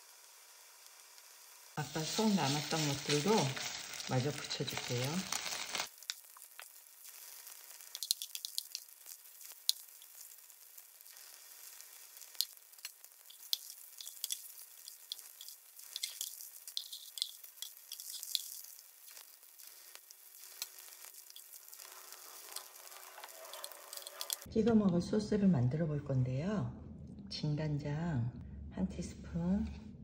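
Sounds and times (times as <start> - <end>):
pancakes sizzling in oil: 0.0 - 24.5.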